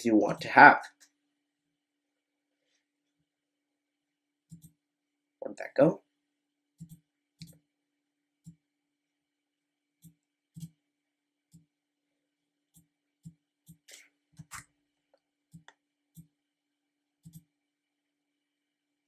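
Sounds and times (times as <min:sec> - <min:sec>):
computer mouse clicks: 0:04.5 - 0:04.8, 0:06.8 - 0:07.6, 0:10.0 - 0:10.8, 0:12.7 - 0:14.7, 0:17.2 - 0:17.5.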